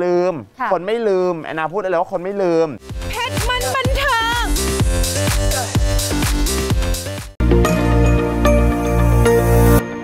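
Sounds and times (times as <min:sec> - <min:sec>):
synthesised jingle music: 0:03.2 - 0:10.0.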